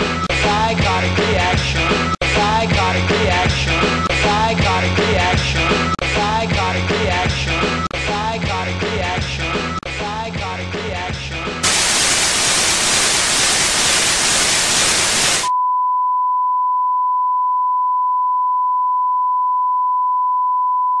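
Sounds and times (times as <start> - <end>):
loud white-noise static: 11.6 - 15.5.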